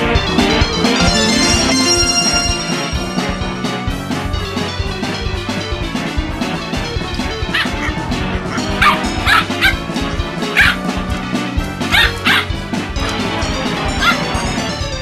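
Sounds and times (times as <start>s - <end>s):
background music: 0.0s - 12.4s
puppy yipping: 11.9s - 12.5s.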